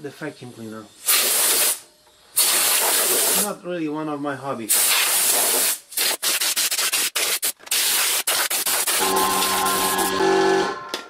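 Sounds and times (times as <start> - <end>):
air blow gun hissing: 0.5 - 3.6, 4.7 - 6.2
air compressor humming: 8.9 - 10.9.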